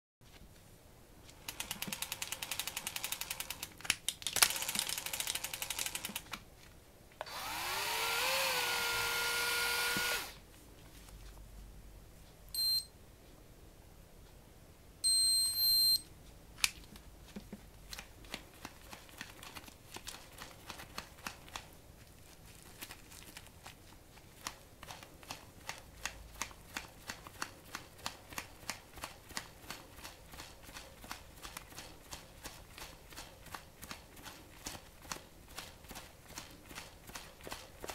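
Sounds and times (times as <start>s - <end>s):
reel motor whirring: 7.3s - 10.3s
short electronic beeps: 12.6s - 12.9s, 15.0s - 16.0s.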